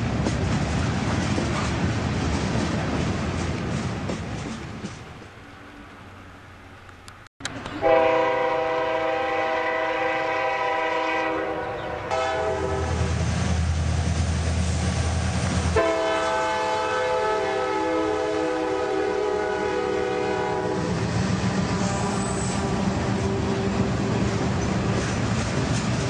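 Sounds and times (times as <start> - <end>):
train rumbling: 0.0 - 26.0
train horn blasts: 7.8 - 13.2, 15.7 - 21.0, 21.6 - 24.2.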